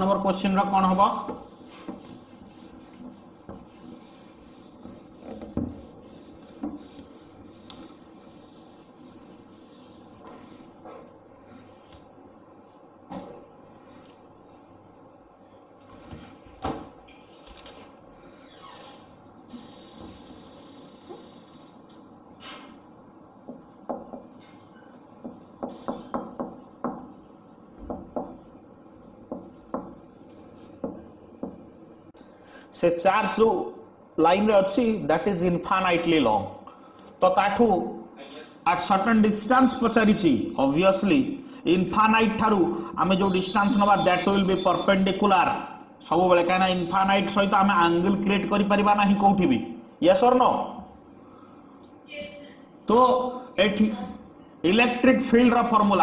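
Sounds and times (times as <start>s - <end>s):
duster scrubbing whiteboard: 1.0s - 11.1s.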